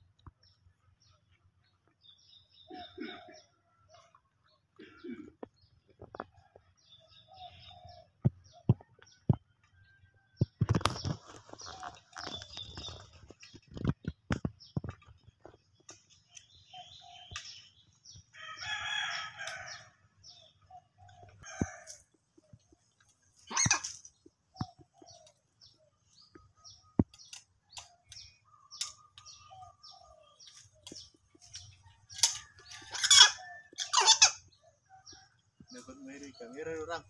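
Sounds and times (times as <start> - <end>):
rooster crowing: 18.4 - 19.9.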